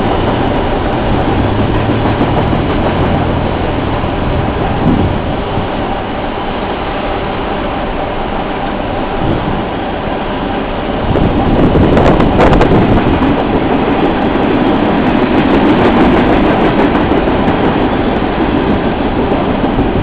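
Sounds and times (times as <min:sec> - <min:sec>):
wheels clattering over rail joints: 0:00.0 - 0:05.8
freight train wheels rumbling: 0:00.0 - 0:20.0.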